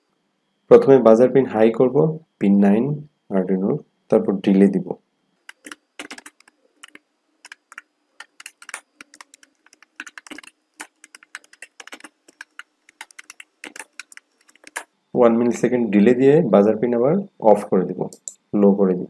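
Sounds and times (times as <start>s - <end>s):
typing on computer keyboard: 5.5s - 14.9s, 18.1s - 18.4s.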